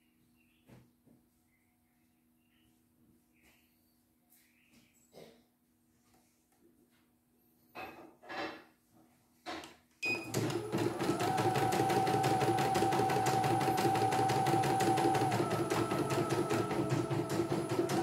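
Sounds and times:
machine whine: 0:10.2 - 0:18.0.

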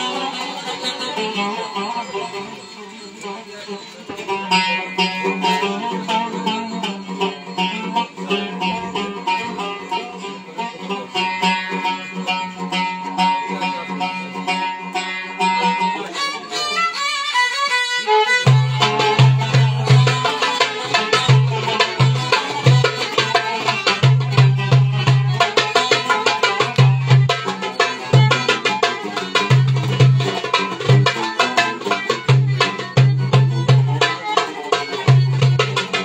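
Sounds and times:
plucked lute: 0:00.0 - 0:36.0
violin melody: 0:00.0 - 0:36.0
light hand-drum strokes: 0:18.3 - 0:36.0
deep drum beats: 0:18.4 - 0:36.0.

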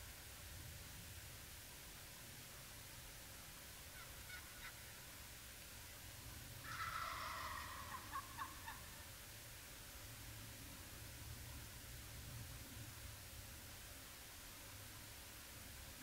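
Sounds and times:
turkey gobbling: 0:04.0 - 0:05.0, 0:06.6 - 0:09.0.

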